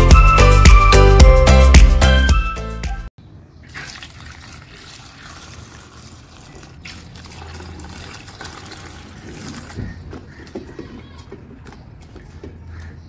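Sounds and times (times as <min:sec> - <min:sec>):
water pouring into metal bowl: 0:03.7 - 0:09.8.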